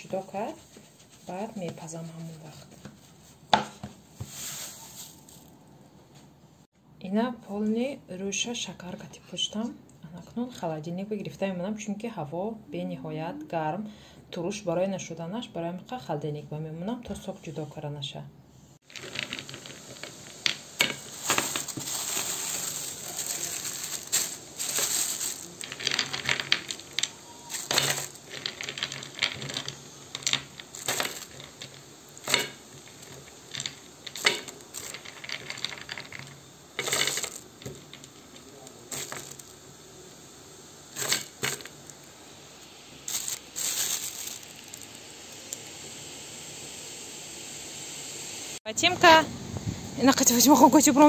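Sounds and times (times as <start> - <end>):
plastic bag crinkling: 4.3 - 5.6, 18.8 - 39.6, 40.9 - 42.1, 43.0 - 45.7.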